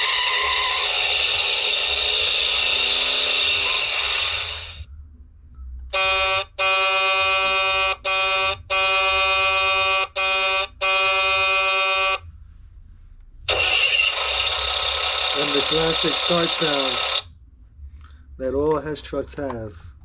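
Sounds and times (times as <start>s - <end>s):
toy engine-start sound effect: 0.0s - 4.8s, 13.5s - 17.2s
toy truck electronic horn honks: 5.9s - 12.2s.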